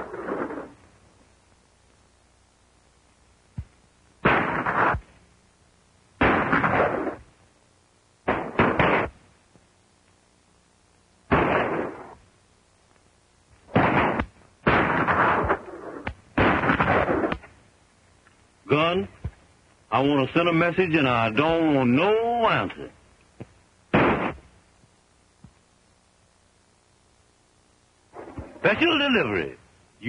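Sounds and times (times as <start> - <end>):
gunshots: 0.0 - 0.8, 4.2 - 5.1, 6.2 - 7.3, 8.2 - 9.2, 11.3 - 12.2, 13.7 - 17.5, 23.9 - 24.5, 28.1 - 29.1.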